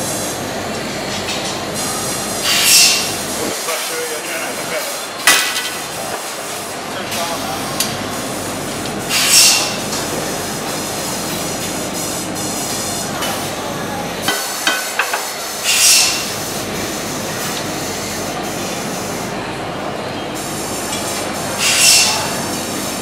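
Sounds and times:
factory machinery drone: 0.0 - 23.0.

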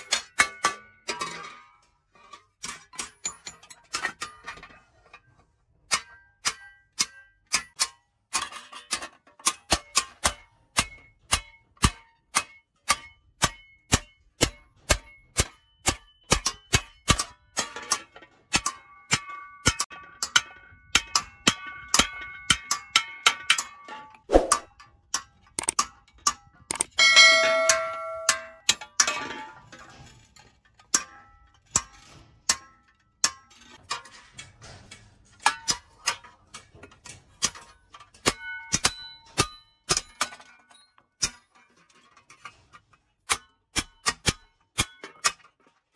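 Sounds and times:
hammer striking metal blade: 9.4 - 17.8, 25.6 - 28.8, 38.2 - 40.3
loud ringing metal clang: 27.0 - 28.6.

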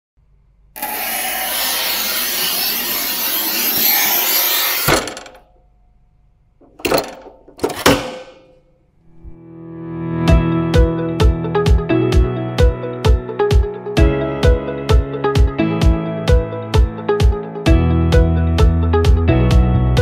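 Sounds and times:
harsh sawing noise: 0.8 - 5.3.

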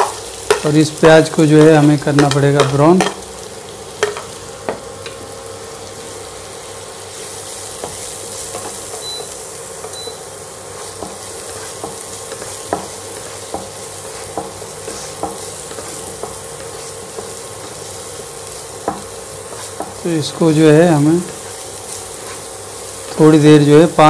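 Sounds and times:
wooden spatula knocking pan: 0.0 - 3.2, 11.0 - 16.4, 19.8 - 20.0
onion and garlic sizzling in oil: 0.0 - 24.0.

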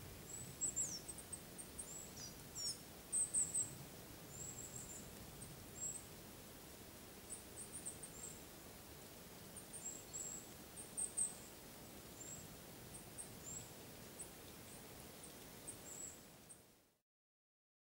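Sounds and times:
faint forest ambience: 0.0 - 17.0
small bird high-pitched calls: 0.3 - 5.1, 5.7 - 6.1, 7.3 - 8.4, 9.5 - 11.5, 12.2 - 16.6.

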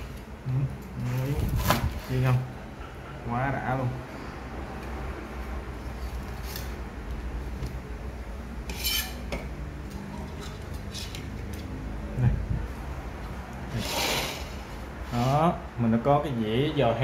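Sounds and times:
cutlery scraping on plate: 8.6 - 9.5.

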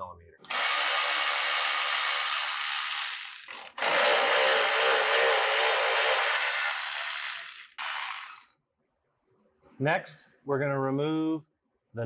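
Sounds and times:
cordless power ratchet whirring: 0.4 - 8.5.

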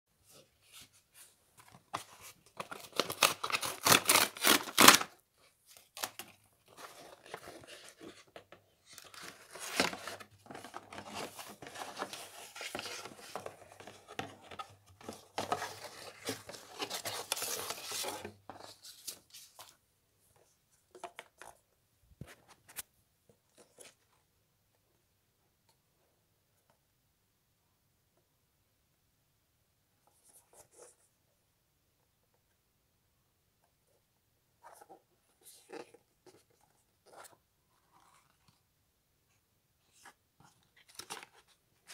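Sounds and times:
cardboard ripping: 2.7 - 5.1
cardboard scraping and rustling: 6.1 - 19.7.

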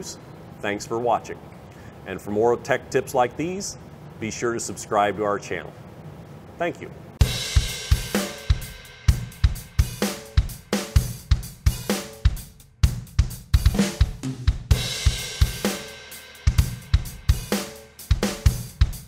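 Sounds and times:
up-tempo rock drum beat: 7.2 - 19.0.

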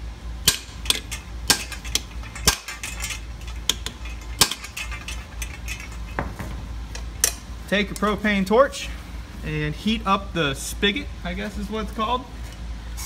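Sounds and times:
hammer clanking on steel: 0.4 - 7.5.

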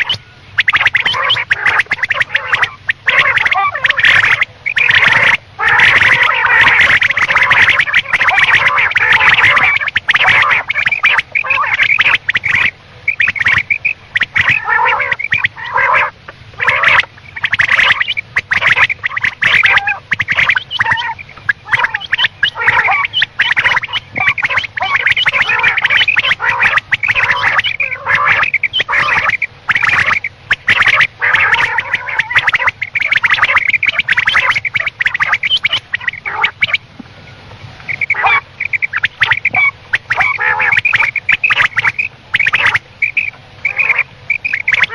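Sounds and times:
quail calling: 0.0 - 37.0, 37.6 - 44.9.

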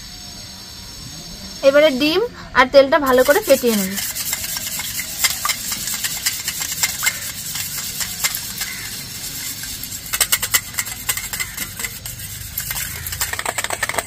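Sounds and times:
wire whisk clicking against metal bowl: 3.1 - 14.0.

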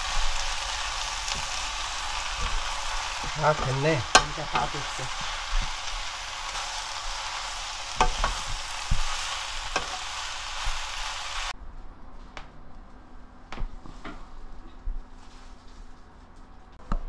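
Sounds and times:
eggplant sizzling in frying pan: 0.0 - 11.6.

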